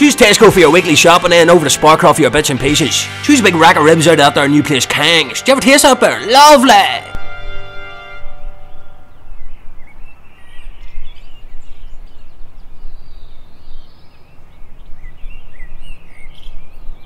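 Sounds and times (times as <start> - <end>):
outdoor background noise: 0.0 - 17.0
small birds chirping: 8.2 - 17.0.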